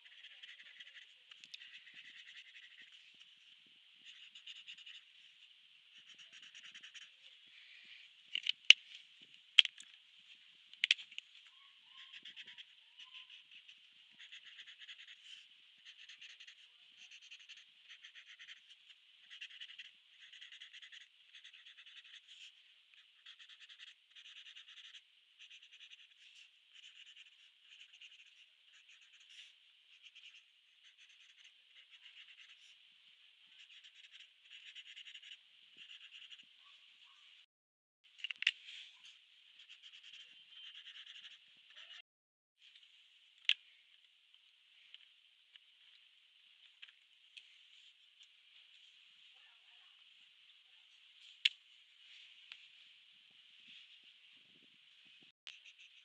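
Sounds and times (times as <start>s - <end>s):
marker scratching on paper: 0.0s - 3.4s, 4.0s - 5.1s, 5.9s - 7.2s, 11.9s - 32.8s, 33.5s - 36.5s, 38.9s - 42.0s, 55.5s - 56.0s.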